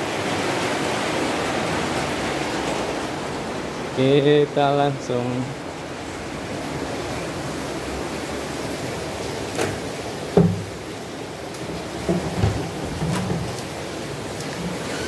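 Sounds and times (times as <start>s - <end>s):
heavy rain hissing: 6.6s - 15.0s
sharp knocks: 10.4s - 10.8s.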